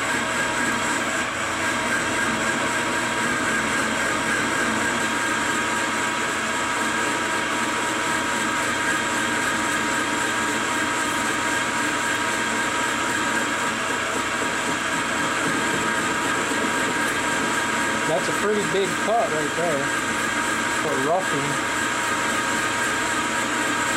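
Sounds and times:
metal lathe whine: 0.0 - 23.9
hiss of lathe cutting metal: 18.0 - 20.0.

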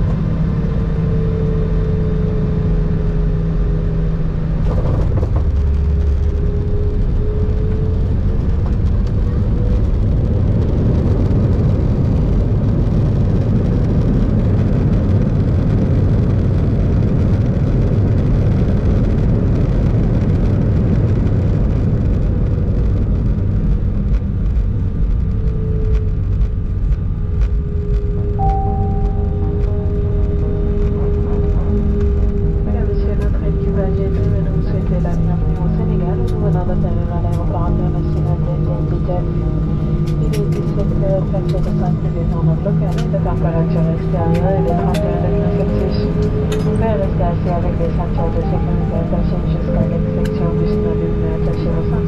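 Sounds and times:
aircraft cabin rumble: 0.0 - 52.0
faint wavering engine whine: 0.0 - 52.0.

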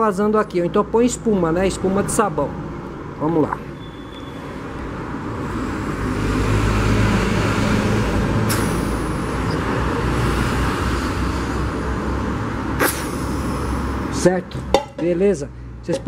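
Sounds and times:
person blowing into pipe: 12.8 - 14.1.

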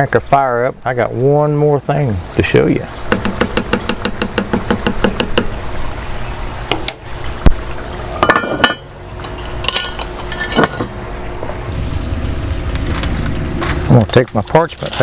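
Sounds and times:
spoon ticking against pot: 3.1 - 5.5
cast iron lid clanking: 8.2 - 11.0.

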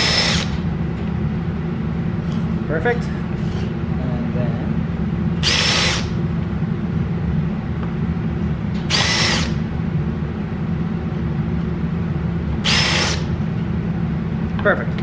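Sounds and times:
cordless drill motor whine: 0.0 - 0.6, 5.4 - 6.2, 8.9 - 9.6, 12.6 - 13.4
steady low hum: 0.0 - 15.0.

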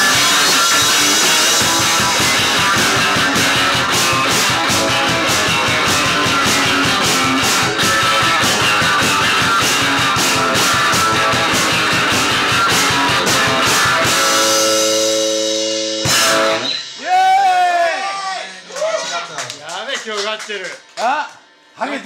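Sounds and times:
electric guitar: 0.0 - 17.6
drum kit fast beat: 0.0 - 18.3.

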